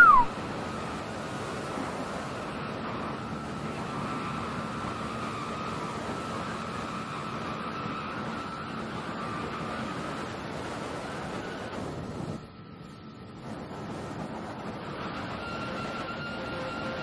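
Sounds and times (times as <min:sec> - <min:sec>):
motorboat engine running: 0:00.0 - 0:17.0
rush of water and wind: 0:00.0 - 0:17.0.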